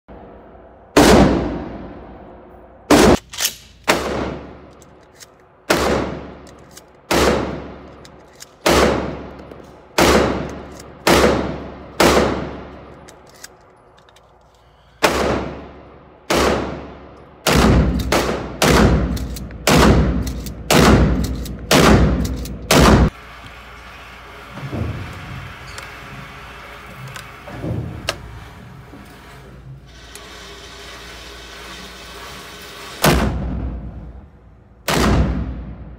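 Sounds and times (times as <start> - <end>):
shotgun shots echoing indoors: 0.9 - 4.8, 5.6 - 13.2, 15.0 - 23.2, 34.8 - 35.9.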